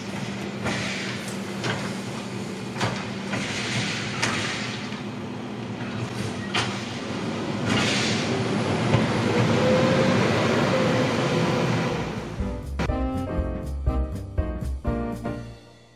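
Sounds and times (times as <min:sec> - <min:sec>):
garbage truck engine: 0:00.0 - 0:15.8
music: 0:12.3 - 0:15.9.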